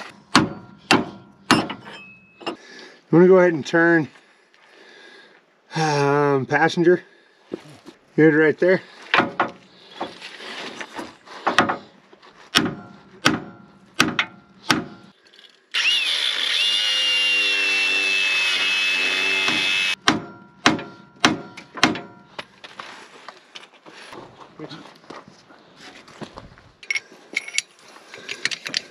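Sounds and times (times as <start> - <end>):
hammer striking steel: 0.0 - 2.6, 12.6 - 15.1, 19.4 - 22.4
cordless power tool whining: 15.7 - 20.0.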